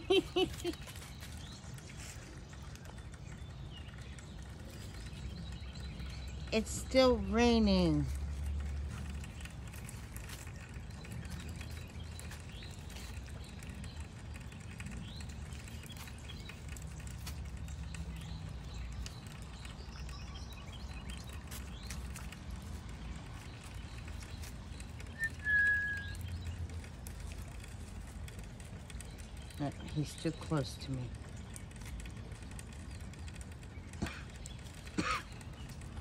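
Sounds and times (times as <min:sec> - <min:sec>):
steady low rumble: 0:00.0 - 0:36.0
whistle-like call: 0:25.2 - 0:26.1.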